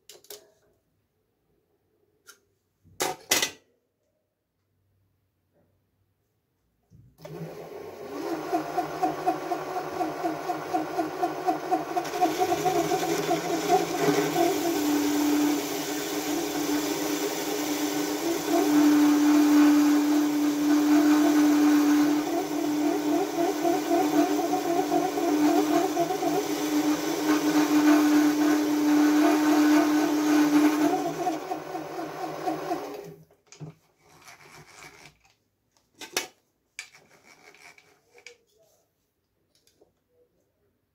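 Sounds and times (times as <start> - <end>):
metal lathe motor whirring: 8.2 - 33.0.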